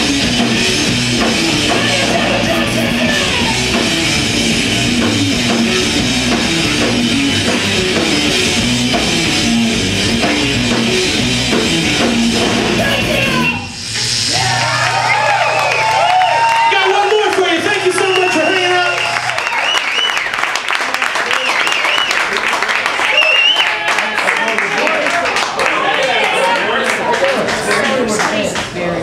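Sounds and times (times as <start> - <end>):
metal band playing: 0.0 - 19.3.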